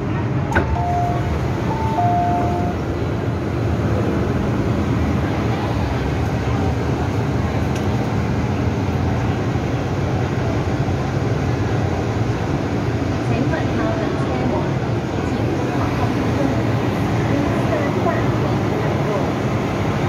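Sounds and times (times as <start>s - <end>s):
train car rumble: 0.0s - 20.0s
electronic chime tones: 0.7s - 2.8s.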